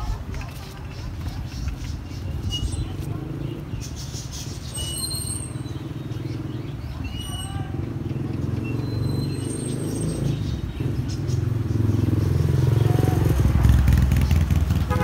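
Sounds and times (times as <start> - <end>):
vehicle engine humming: 7.8 - 15.0.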